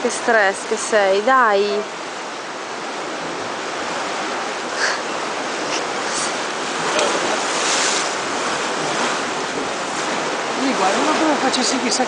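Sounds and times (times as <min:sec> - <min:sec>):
sea washing against rocks: 0:02.7 - 0:12.0.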